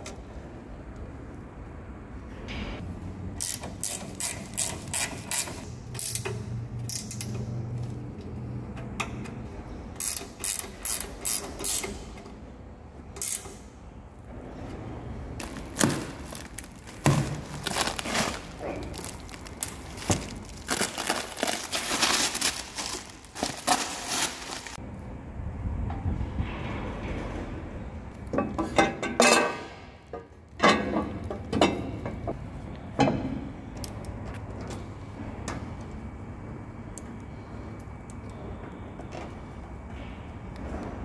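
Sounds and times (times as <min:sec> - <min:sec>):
ratchet spanner clicking: 0:03.4 - 0:07.6, 0:10.0 - 0:12.3, 0:13.2 - 0:13.7.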